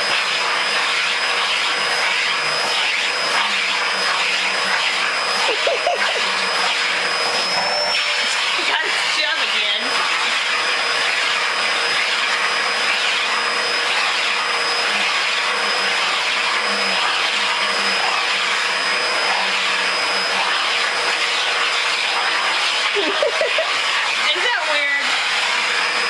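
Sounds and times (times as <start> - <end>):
vacuum cleaner running: 0.0 - 26.0.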